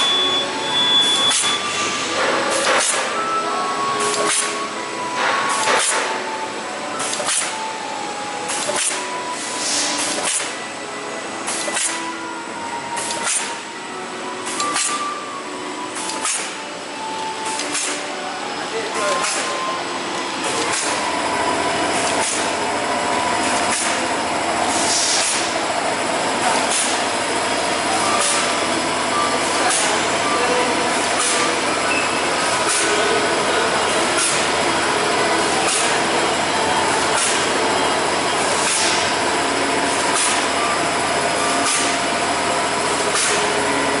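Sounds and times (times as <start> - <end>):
short high machine stroke: 0.0 - 3.3, 24.7 - 25.6, 29.2 - 36.2
bag-making machine humming: 0.0 - 44.0.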